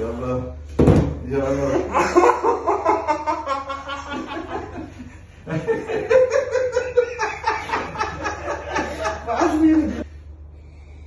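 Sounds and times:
man laughing: 1.6s - 10.0s.

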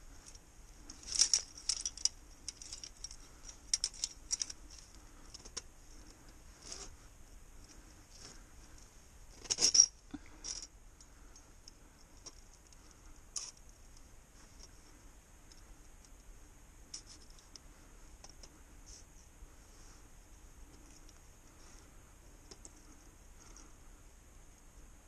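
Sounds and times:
metal trap clicking and clinking: 0.9s - 5.6s.

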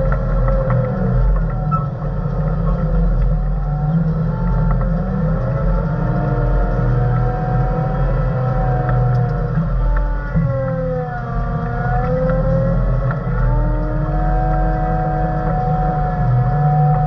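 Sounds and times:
diesel engine rumble under load: 0.0s - 17.0s
whine sliding in pitch: 0.0s - 17.0s.

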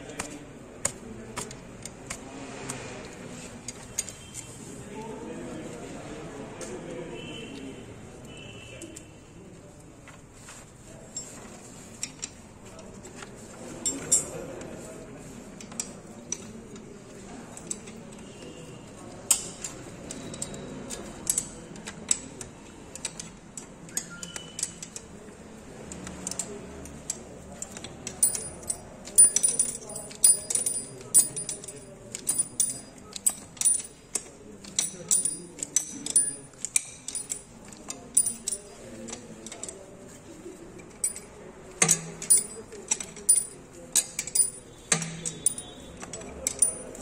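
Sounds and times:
wrench clicking on metal fittings: 28.1s - 37.5s, 38.2s - 38.7s, 41.0s - 47.0s.

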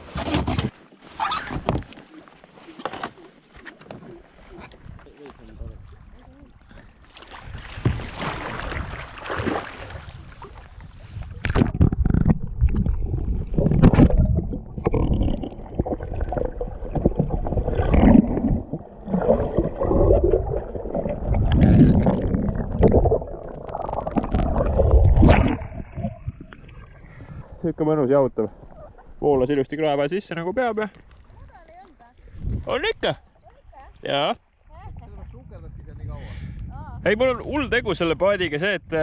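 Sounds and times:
water splashing: 0.4s - 27.9s
muffled underwater gurgling: 11.3s - 27.8s.

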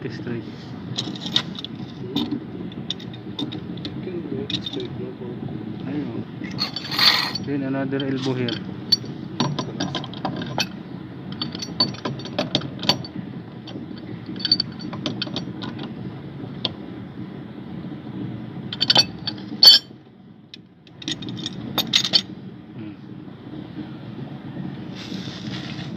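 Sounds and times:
clinks of fittings and tools: 6.5s - 10.7s, 11.4s - 13.1s, 14.4s - 15.8s, 18.8s - 19.9s
pipe wrench clicking and scraping: 6.5s - 10.7s.

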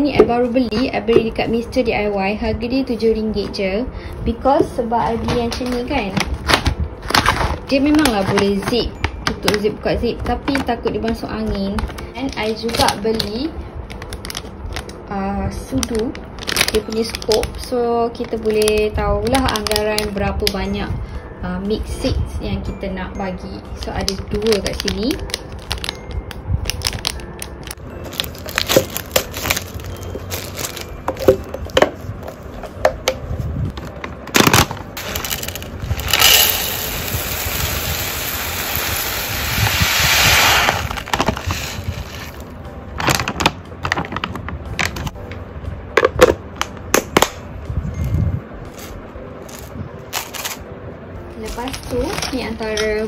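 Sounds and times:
plastic packaging handled: 15.8s - 20.2s, 24.0s - 32.6s, 33.7s - 45.1s, 48.7s - 50.6s
seeds pouring into plastic container: 35.0s - 42.4s.

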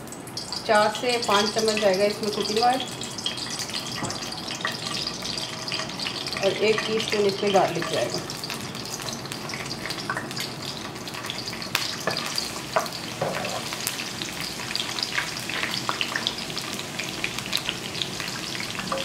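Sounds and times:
garlic sizzling in oil: 0.0s - 19.0s
oil crackles and pops: 7.7s - 19.0s.

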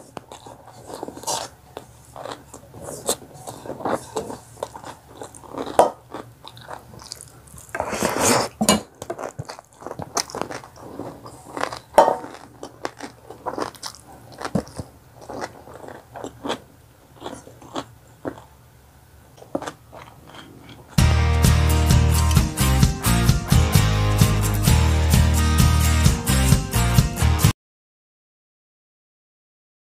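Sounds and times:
person chewing noodles: 0.0s - 23.2s.

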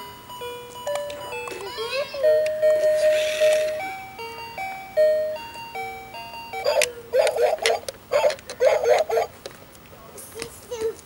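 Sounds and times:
electronic toy beeping melody: 0.0s - 7.8s.

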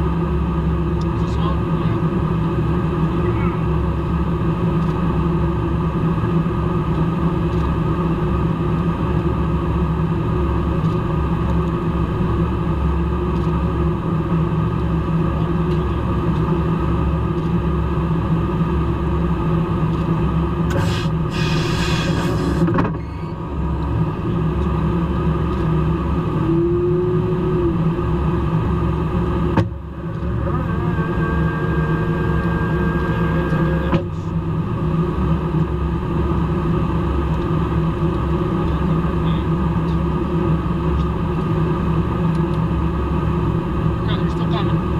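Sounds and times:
engine and airflow rumble: 0.0s - 44.9s
burst of hiss: 20.8s - 22.6s.

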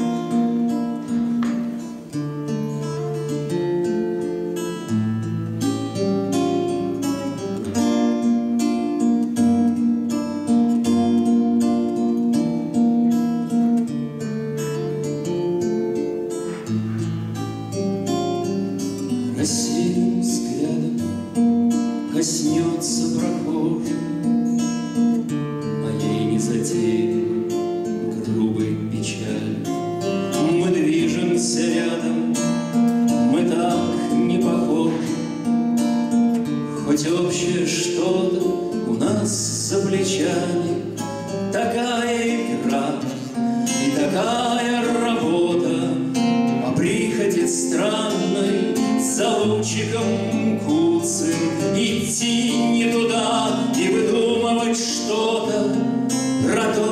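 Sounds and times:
nylon-string guitar: 0.0s - 56.9s
man singing: 19.2s - 35.7s, 36.4s - 56.9s.

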